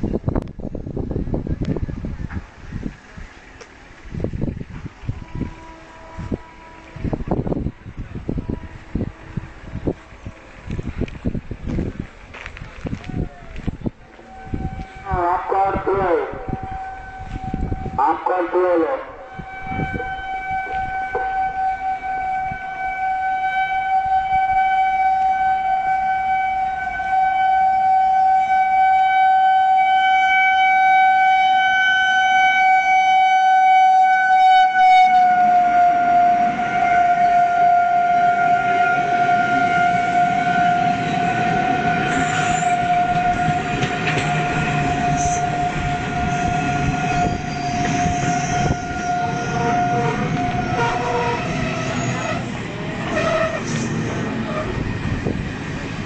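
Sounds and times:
locomotive horn: 0:04.8 - 0:11.2, 0:13.0 - 0:55.4
coaches clattering on rails: 0:40.8 - 0:56.0.

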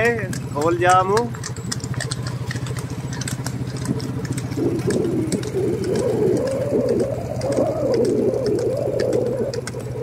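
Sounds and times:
vehicle engine running: 0:00.0 - 0:10.0
wavering pitched call: 0:04.3 - 0:10.0.

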